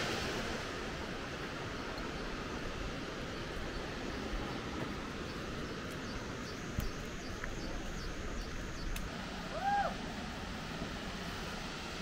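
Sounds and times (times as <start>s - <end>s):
waterfall rushing: 9.1s - 12.0s.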